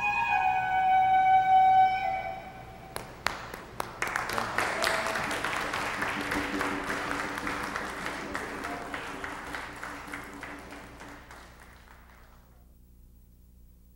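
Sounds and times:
held musical note: 0:00.0 - 0:03.0
group applauding: 0:02.9 - 0:12.6.

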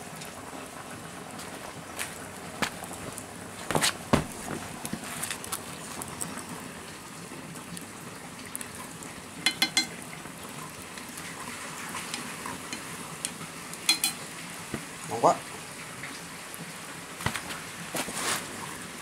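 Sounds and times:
crackling wood fire: 0:00.0 - 0:19.0
food cooking in a metal pot: 0:00.0 - 0:19.0
chopsticks tapping a metal pot: 0:09.4 - 0:10.0, 0:13.9 - 0:14.2.

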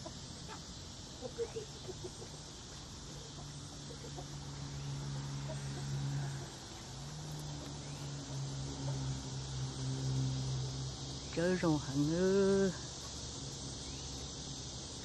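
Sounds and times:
chickens clucking: 0:00.0 - 0:06.9
high insect buzz: 0:00.0 - 0:15.0.

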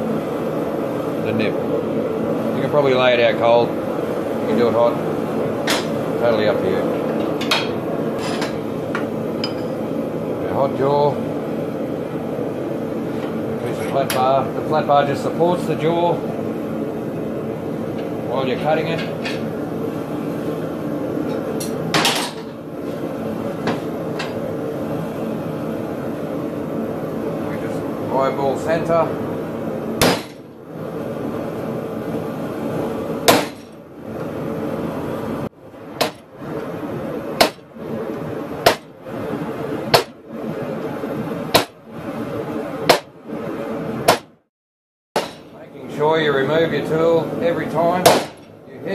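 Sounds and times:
forge running: 0:00.0 - 0:44.3, 0:45.2 - 0:48.9
loud metallic clank: 0:45.2 - 0:45.6.

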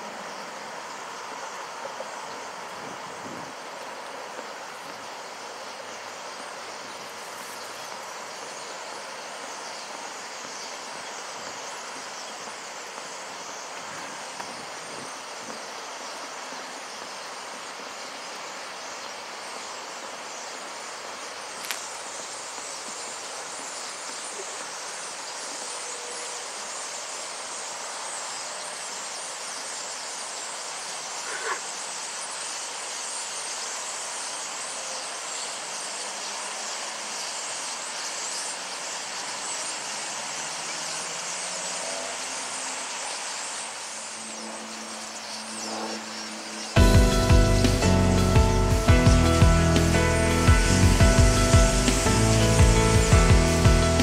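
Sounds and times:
starlings chattering: 0:43.0 - 0:54.0.

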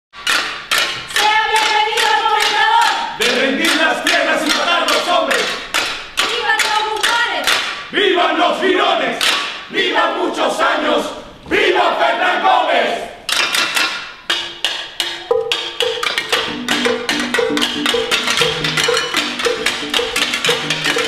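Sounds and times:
sharp percussive strikes: 0:00.2 - 0:07.9, 0:09.2 - 0:09.7, 0:13.2 - 0:21.0
group of voices chanting: 0:01.1 - 0:05.7, 0:06.7 - 0:13.2.

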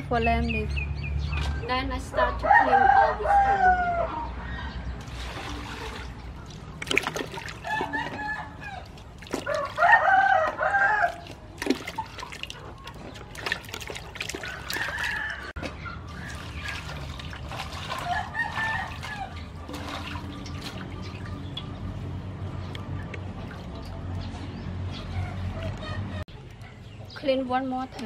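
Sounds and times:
rooster crowing: 0:02.3 - 0:04.3, 0:07.6 - 0:11.2, 0:14.5 - 0:15.6
water splashing in metal basin: 0:05.0 - 0:22.2, 0:22.8 - 0:24.3.

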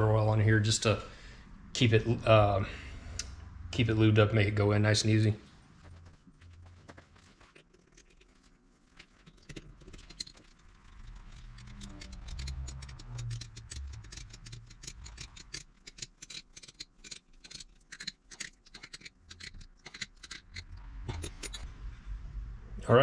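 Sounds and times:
wrench metallic clicks: 0:11.1 - 0:21.6.

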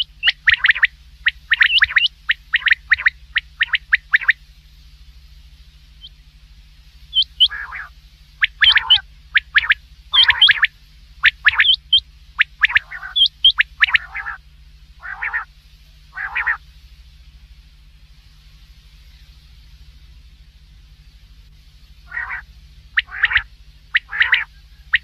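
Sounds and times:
quail calling: 0:00.0 - 0:04.4, 0:07.1 - 0:14.4, 0:15.0 - 0:15.5, 0:16.1 - 0:16.6, 0:22.0 - 0:25.0
low hum: 0:00.0 - 0:25.0.

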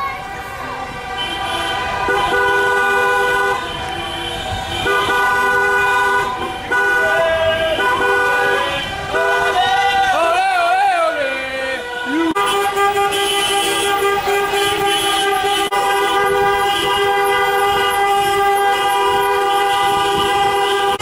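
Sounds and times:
car horn long blast: 0:00.9 - 0:21.0.

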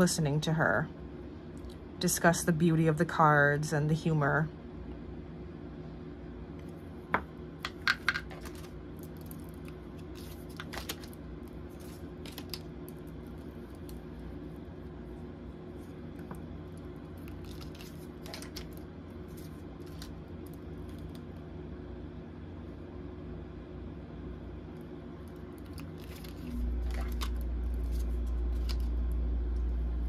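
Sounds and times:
steady low hum: 0:00.0 - 0:30.0
cards clicking and tapping: 0:07.2 - 0:08.7
cards rustling: 0:07.8 - 0:14.1, 0:15.7 - 0:21.3, 0:25.5 - 0:29.1.

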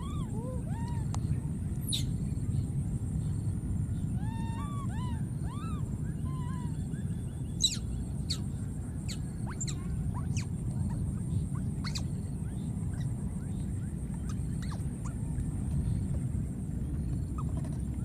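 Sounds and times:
baby monkeys squeaking: 0:04.2 - 0:06.7, 0:09.1 - 0:12.1, 0:14.2 - 0:15.2, 0:17.4 - 0:17.7.

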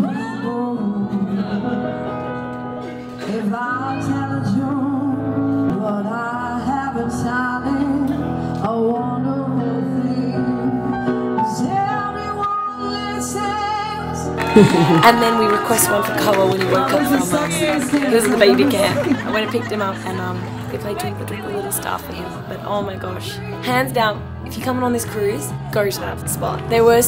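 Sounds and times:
woman singing into a microphone: 0:00.0 - 0:02.0, 0:03.2 - 0:23.0
piano playing: 0:09.0 - 0:27.0.

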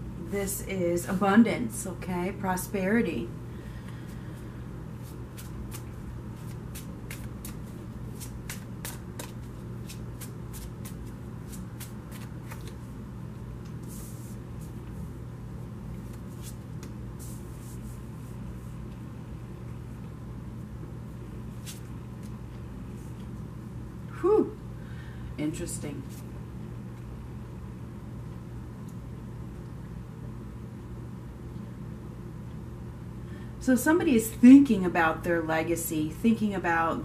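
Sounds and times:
cards sliding on cloth: 0:03.9 - 0:12.9, 0:13.6 - 0:15.0, 0:15.9 - 0:18.8, 0:21.5 - 0:23.2
cards being shuffled: 0:05.0 - 0:12.9, 0:15.9 - 0:17.8, 0:21.6 - 0:22.4.

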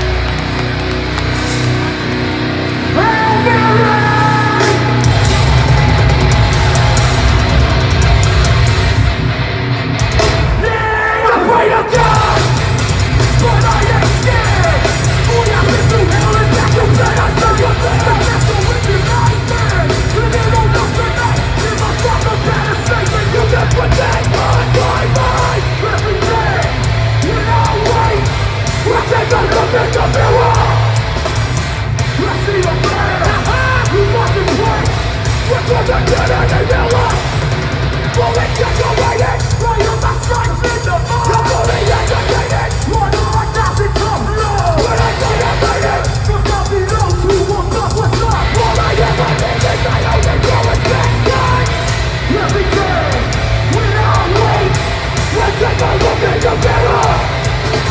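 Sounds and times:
bass: 0:00.0 - 0:57.9
distorted guitars: 0:00.0 - 0:57.9
drums: 0:00.0 - 0:57.9
shouted vocal: 0:02.9 - 0:07.5, 0:10.5 - 0:31.1, 0:38.2 - 0:57.9.

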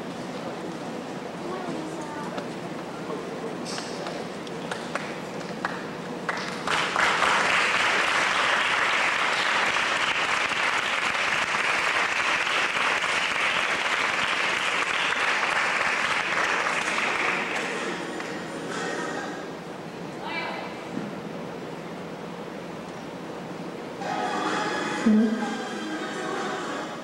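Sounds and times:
audience applauding: 0:04.6 - 0:18.3.

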